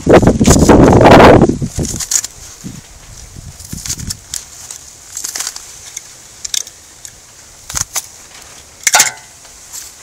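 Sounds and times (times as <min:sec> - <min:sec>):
blade cutting cardboard and paper: 0:01.7 - 0:02.4.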